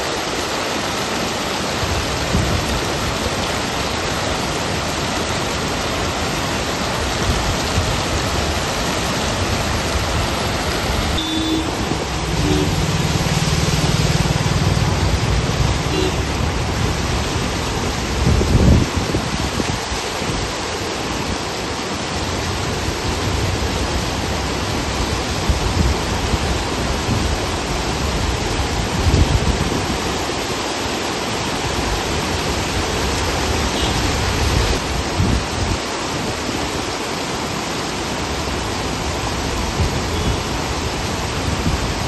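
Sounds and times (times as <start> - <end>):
rain and floodwater rushing: 0.0 - 42.0
low rumbles: 9.6 - 17.8
vehicle engine humming: 10.5 - 16.7.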